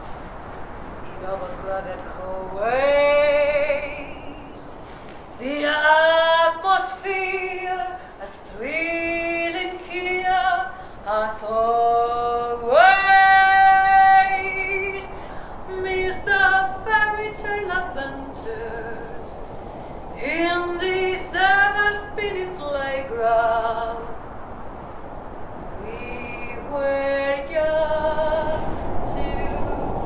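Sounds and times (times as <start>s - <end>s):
woman singing solo: 5.4s - 19.4s, 20.2s - 24.2s, 25.8s - 30.0s.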